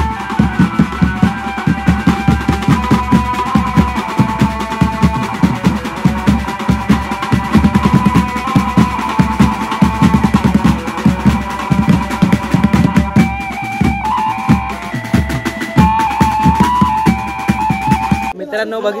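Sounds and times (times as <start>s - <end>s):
fast dense drumming: 0.0s - 18.3s
amplified melody line: 0.0s - 18.4s.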